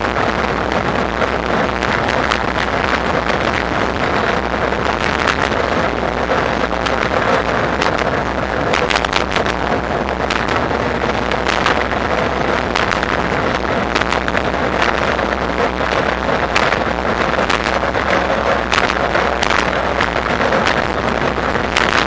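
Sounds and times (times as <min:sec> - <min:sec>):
bike rolling noise: 0:00.0 - 0:22.0
wind buffeting microphone: 0:00.0 - 0:22.0
clicks and rattles: 0:12.6 - 0:22.0.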